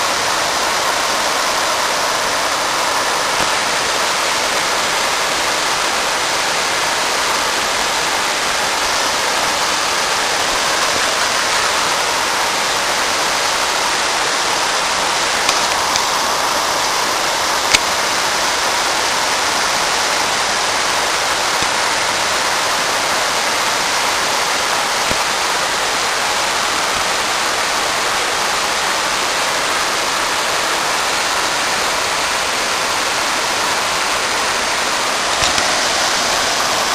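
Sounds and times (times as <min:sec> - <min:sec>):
rushing water hiss: 0:00.0 - 0:36.9
sharp click: 0:35.3 - 0:35.8.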